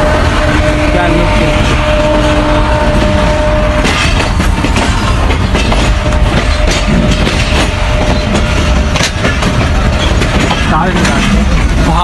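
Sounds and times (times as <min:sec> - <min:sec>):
train running rumble: 0:00.0 - 0:12.0
rattles and knocks of carriage: 0:02.9 - 0:12.0.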